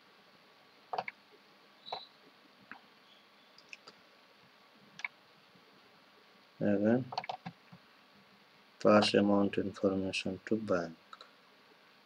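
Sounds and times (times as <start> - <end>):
computer mouse clicks: 0.9 - 1.2, 3.6 - 4.0, 5.0 - 5.2, 7.1 - 7.6.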